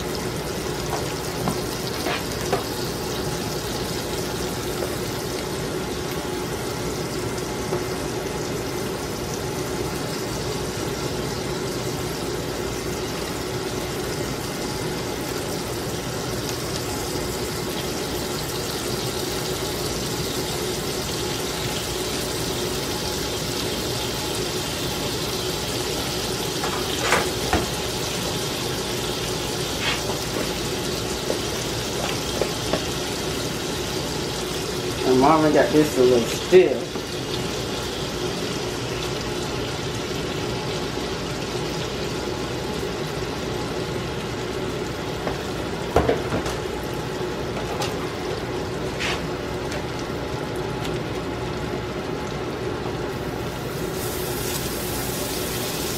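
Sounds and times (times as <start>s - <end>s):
butter sizzling in a skillet: 0.0s - 51.4s, 53.0s - 55.9s
batter pouring: 53.3s - 55.9s.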